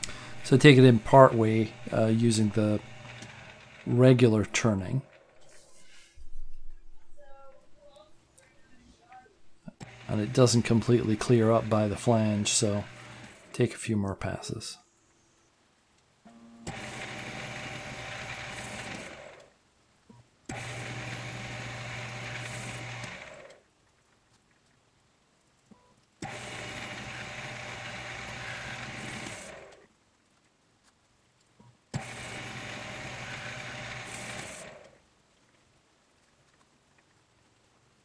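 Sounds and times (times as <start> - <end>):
lathe spindle motor running: 0.0 - 5.4, 9.7 - 13.6, 16.7 - 19.5, 20.5 - 23.6, 26.2 - 29.8, 32.0 - 34.9.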